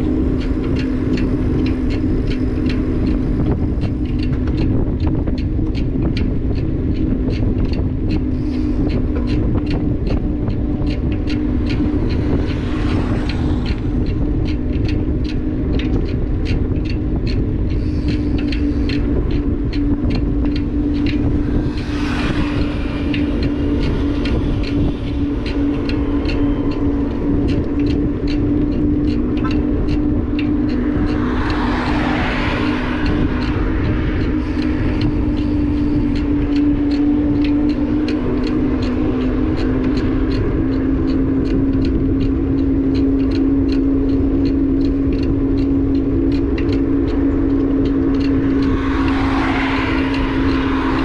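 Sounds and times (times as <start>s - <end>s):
motorbike engine hum: 0.0s - 51.0s
wind noise on microphone: 0.0s - 51.0s
vehicle passing: 8.2s - 42.6s, 44.8s - 51.0s.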